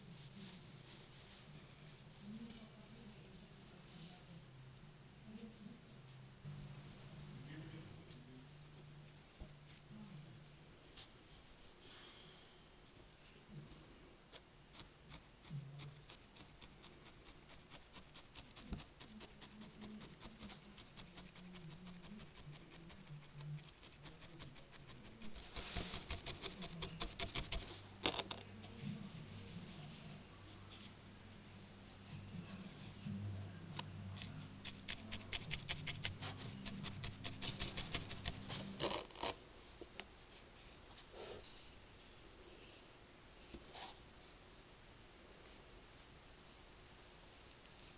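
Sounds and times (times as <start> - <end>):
felting needle pricking wool: 14.3 - 28.2, 33.7 - 39.4
felting needle stabbing wool: 25.3 - 27.7, 34.2 - 39.2.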